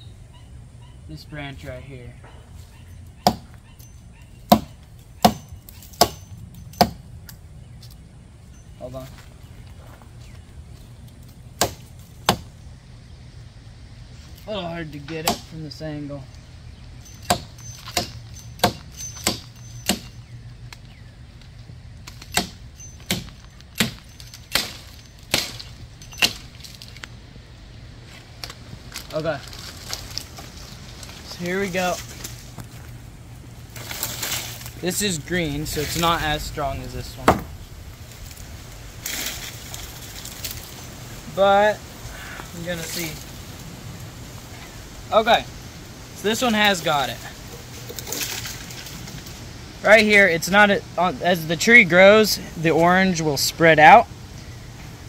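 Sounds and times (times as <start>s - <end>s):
hatchet chopping branch: 3.2s - 3.6s, 4.5s - 8.0s, 11.6s - 12.5s, 15.1s - 15.6s, 17.1s - 20.9s, 22.0s - 27.0s, 37.2s - 37.6s.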